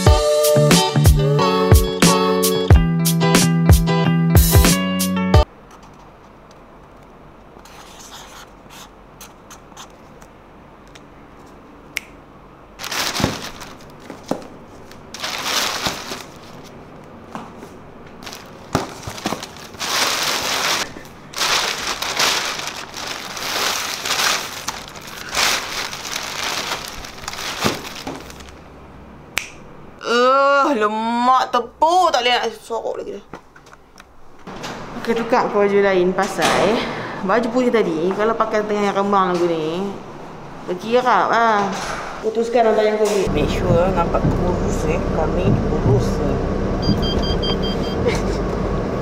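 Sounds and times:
plastic bag rustling: 12.8s - 16.9s, 17.6s - 28.7s.

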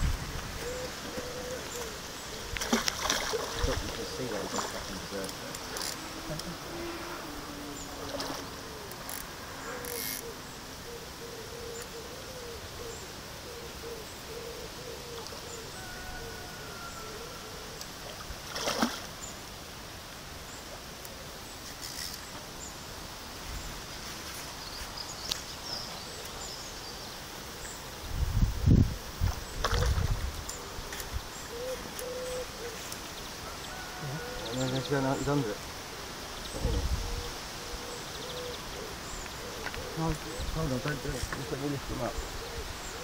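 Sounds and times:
quiet lakeside ambience: 0.0s - 43.0s
fish splashing at the surface: 2.6s - 5.0s, 18.4s - 19.2s.

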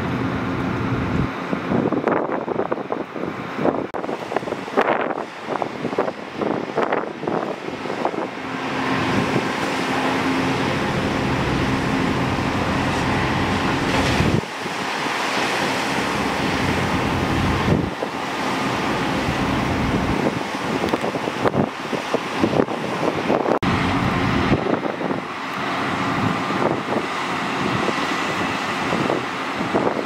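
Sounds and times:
excavator diesel engine: 7.6s - 20.9s, 23.6s - 29.6s.

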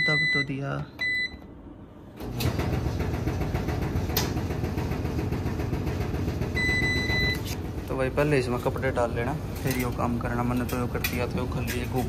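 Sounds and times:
control panel beep: 0.0s - 1.5s, 6.6s - 7.5s
tumble dryer running: 2.2s - 11.6s.

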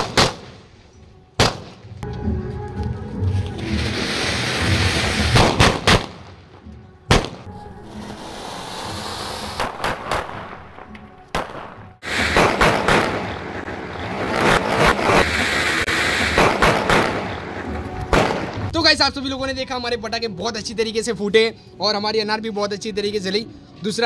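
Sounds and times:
firecrackers bursting: 0.0s - 0.8s, 1.4s - 2.0s, 3.3s - 18.8s
fire fountain hissing: 3.6s - 5.8s, 7.8s - 9.8s, 12.0s - 17.8s.

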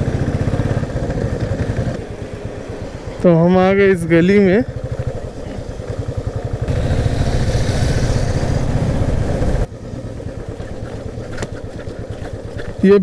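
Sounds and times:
motorcycle engine running: 0.0s - 13.0s
hiss: 6.7s - 9.7s.

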